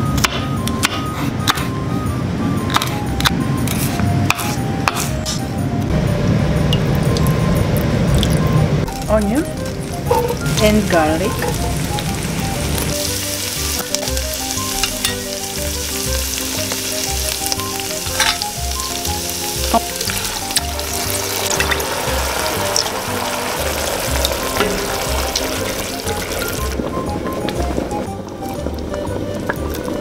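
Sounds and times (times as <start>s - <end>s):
onion sizzling in hot oil: 6.8s - 30.0s.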